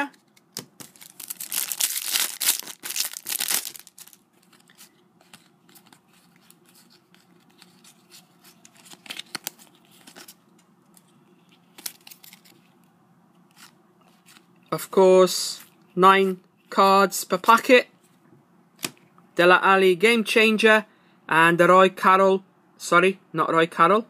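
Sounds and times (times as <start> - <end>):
cards rustling and clicking: 0.0 - 12.7, 13.5 - 14.5
foil packet tearing and crinkling: 0.8 - 4.9, 11.7 - 12.6.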